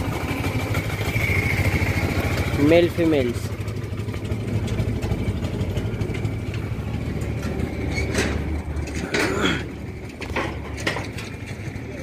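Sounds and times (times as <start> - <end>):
tractor diesel engine idling: 0.0 - 12.0
short clatters: 4.4 - 11.9.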